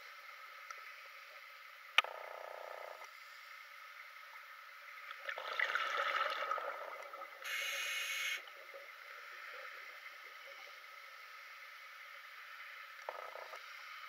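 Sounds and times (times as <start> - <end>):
exhaled bubbles gurgling: 5.1 - 7.7
regulator inhalation hiss: 7.4 - 8.4.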